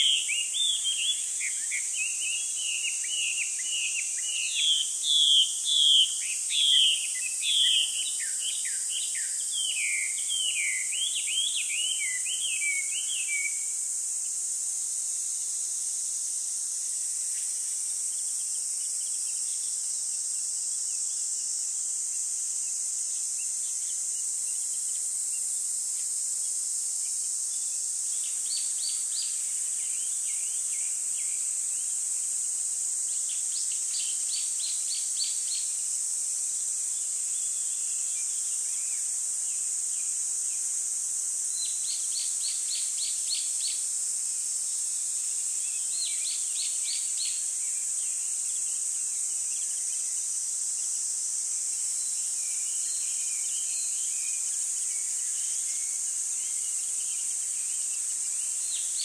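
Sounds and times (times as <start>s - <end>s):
bird singing chirping trills: 0.0s - 13.6s
high-pitched insect chorus: 0.0s - 59.0s.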